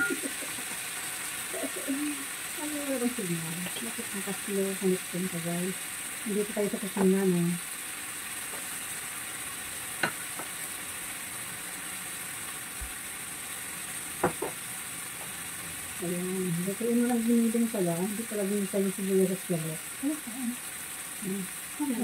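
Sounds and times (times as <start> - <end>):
meat sizzling in oil: 0.0 - 22.0.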